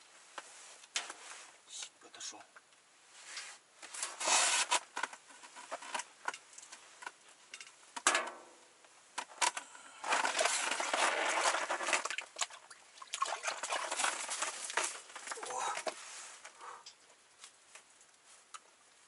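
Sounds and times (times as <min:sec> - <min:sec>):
clothing rustling: 0:00.1 - 0:01.6, 0:10.0 - 0:16.6.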